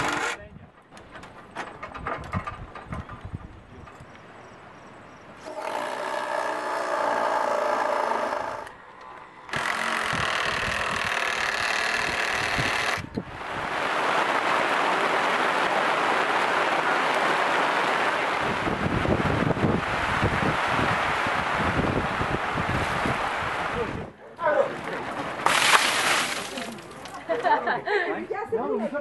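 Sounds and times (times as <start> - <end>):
cordless drill whining: 9.5 - 13.1
heavy rain hissing: 13.3 - 24.0.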